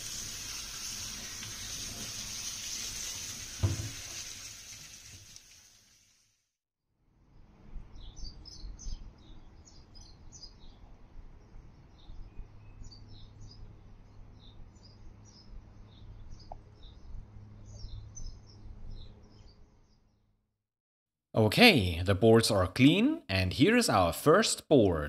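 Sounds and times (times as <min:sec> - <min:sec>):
small birds chirping: 0:07.9 - 0:20.3.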